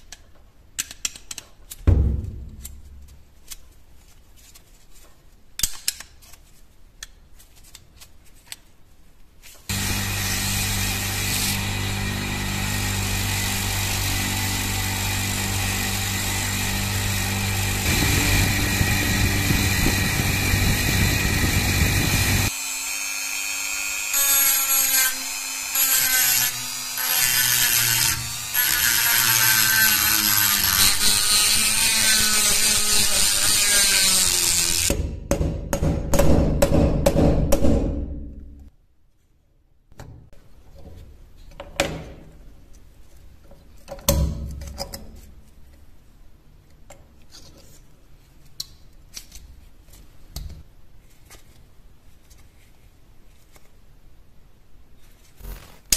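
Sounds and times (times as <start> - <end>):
rotary tool grinding metal: 9.7 - 34.9.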